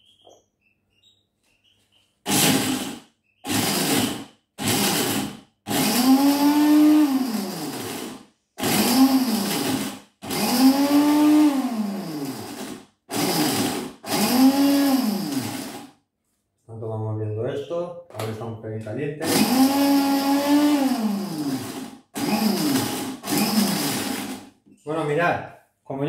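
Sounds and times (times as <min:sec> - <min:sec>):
blender motor whirring: 0:02.3 - 0:15.9, 0:19.2 - 0:24.5.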